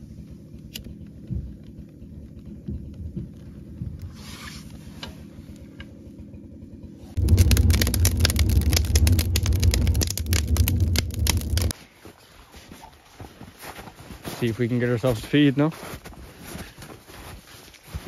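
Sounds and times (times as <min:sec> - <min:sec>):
fire roaring: 0:07.1 - 0:11.7
wood fire crackling: 0:07.2 - 0:11.7.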